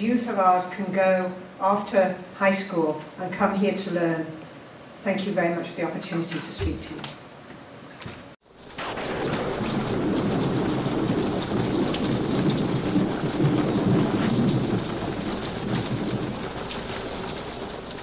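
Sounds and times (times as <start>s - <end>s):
steady rain: 8.4s - 18.0s
low thunder rumble: 8.7s - 18.0s.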